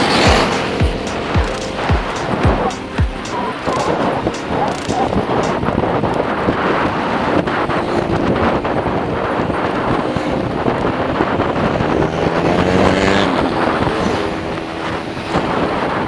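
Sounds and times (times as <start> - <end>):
vehicle engine passing by: 0.0 - 6.5, 11.2 - 16.0
wind buffeting microphone: 0.0 - 16.0.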